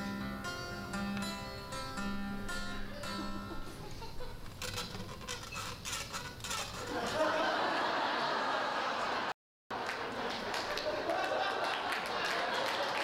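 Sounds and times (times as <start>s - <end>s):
acoustic guitar picking: 0.0s - 7.3s.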